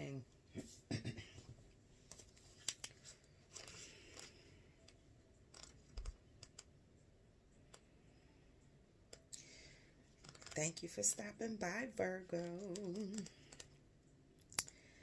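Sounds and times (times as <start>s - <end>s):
book pages rustling: 2.0s - 4.5s, 10.2s - 10.7s.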